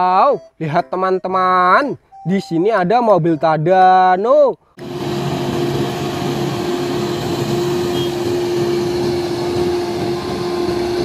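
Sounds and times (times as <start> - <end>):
crane diesel engine droning: 4.8 - 11.0.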